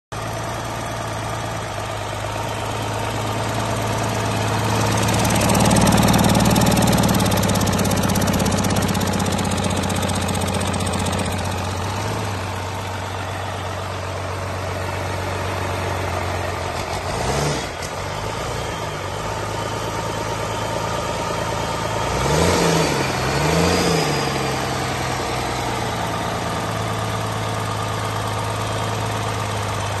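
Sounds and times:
diesel engine idling and revving: 0.1s - 30.0s.

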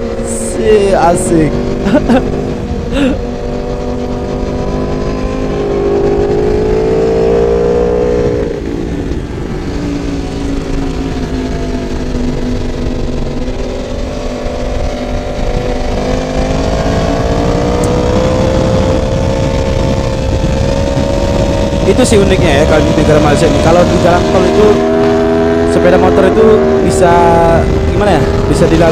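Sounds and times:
motorcycle engine revving: 0.0s - 28.9s
wind rush: 0.0s - 28.9s.

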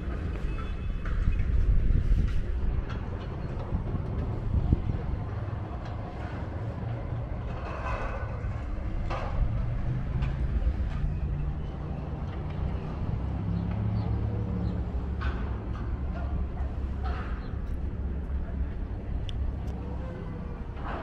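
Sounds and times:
wind on microphone: 0.0s - 11.8s
faint outdoor sounds: 0.0s - 21.0s.

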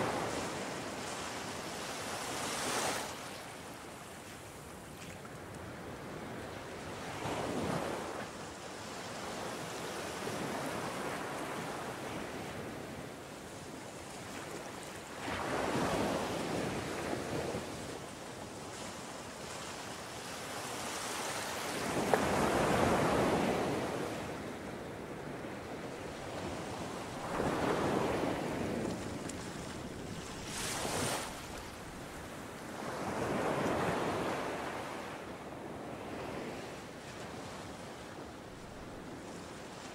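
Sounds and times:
wind: 0.0s - 39.9s.

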